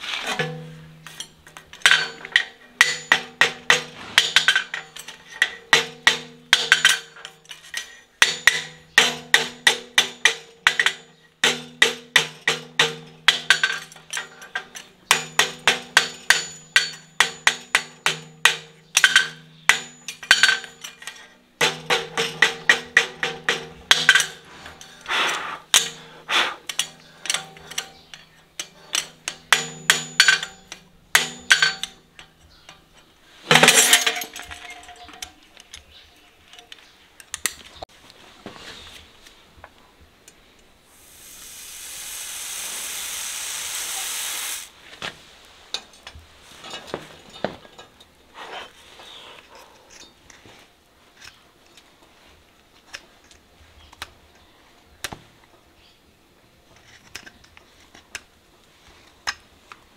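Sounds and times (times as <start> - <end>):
hammer striking horseshoe on anvil: 1.9 - 7.3, 8.2 - 14.4, 15.1 - 21.0, 21.6 - 24.4, 28.6 - 32.0.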